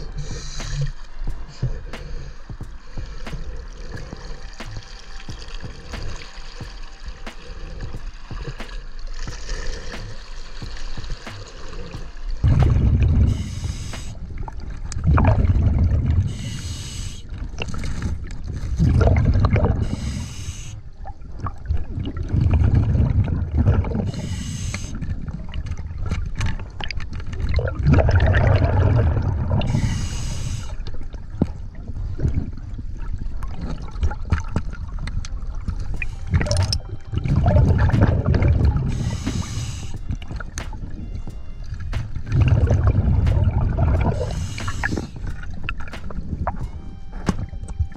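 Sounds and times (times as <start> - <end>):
regulator inhale hiss: 0.0 - 4.6, 13.1 - 14.3, 16.2 - 18.1, 19.7 - 20.9, 24.1 - 25.0, 29.6 - 31.0, 35.9 - 36.5, 38.8 - 40.2, 44.0 - 45.4
exhaled air bubbling underwater: 0.0 - 47.9.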